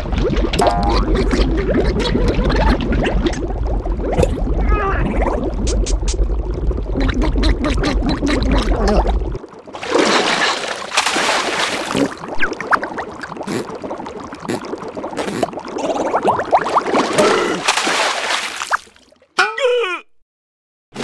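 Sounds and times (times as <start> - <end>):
underwater bubbling: 0.0 - 17.7
water gurgling: 0.0 - 19.3
loud splashing: 9.8 - 12.2, 16.6 - 19.0.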